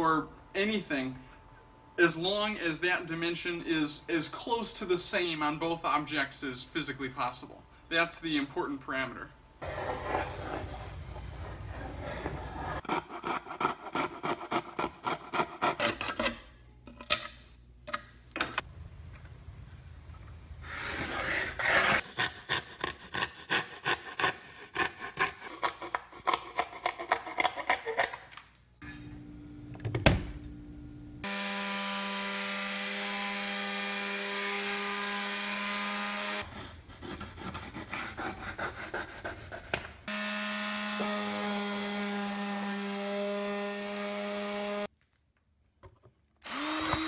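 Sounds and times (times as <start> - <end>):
hand saw cutting plywood: 9.6 - 16.2, 20.8 - 28.1, 31.2 - 44.9, 46.5 - 47.0
electric sander humming: 40.1 - 44.9, 46.5 - 47.0.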